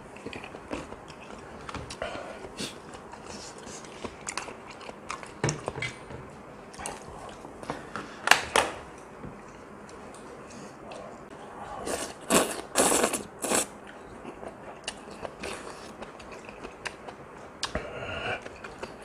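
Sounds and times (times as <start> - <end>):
chewing with wet clicks: 0.1 - 2.0, 2.9 - 5.8, 13.8 - 17.8, 18.4 - 19.0
person slurping noodles: 11.7 - 13.7.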